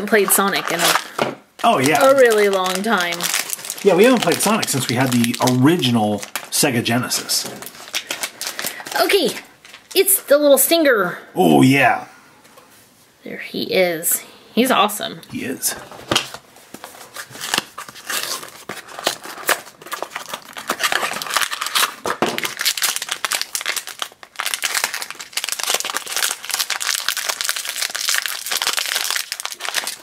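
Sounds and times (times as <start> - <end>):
foil bag crackling: 0.0 - 10.0, 16.8 - 30.0.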